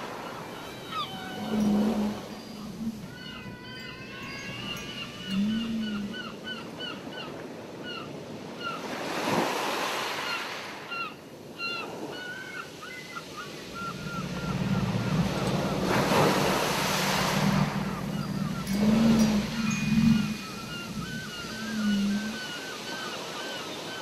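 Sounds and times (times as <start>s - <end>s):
waves breaking: 0.0s - 6.5s, 7.5s - 24.0s
whale song: 0.0s - 7.3s, 10.9s - 24.0s
gulls yelping: 0.0s - 8.8s, 10.3s - 24.0s
ocean surf washing: 0.0s - 24.0s.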